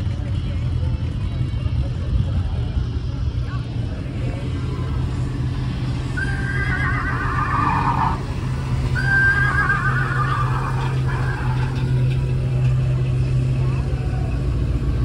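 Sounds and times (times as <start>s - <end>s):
car engines rumbling: 0.0s - 15.0s
horse whinnying: 6.2s - 8.3s, 9.0s - 11.7s.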